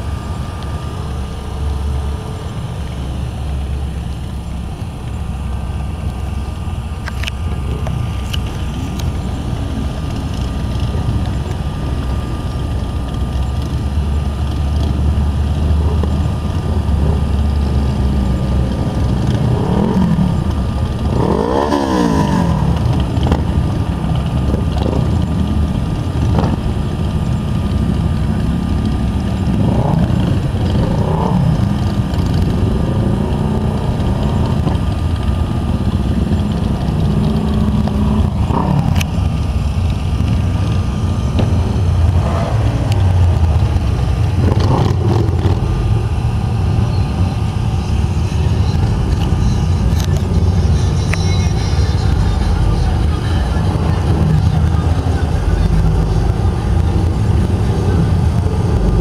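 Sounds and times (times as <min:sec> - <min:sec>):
traffic rumble: 0:00.0 - 0:59.0
vehicle passing close by: 0:41.3 - 0:46.0.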